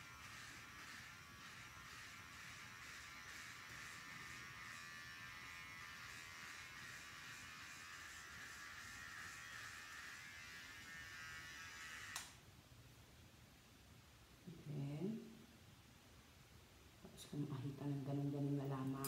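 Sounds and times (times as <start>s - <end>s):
electric hair clipper buzzing: 0.0s - 12.4s.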